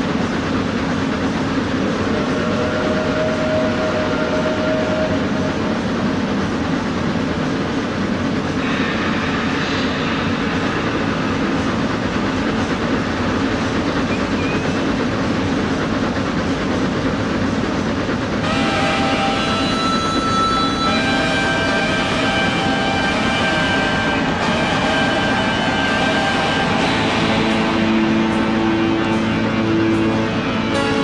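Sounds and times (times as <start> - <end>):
train rushing and rattling: 0.0 - 31.0
sustained pitched note: 1.8 - 7.1, 18.4 - 31.0.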